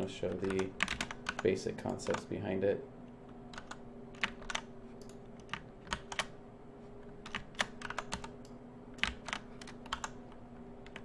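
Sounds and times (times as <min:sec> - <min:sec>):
faint steady hum: 0:00.0 - 0:11.0
keyboard and mouse clicking: 0:03.6 - 0:06.3, 0:07.2 - 0:11.0.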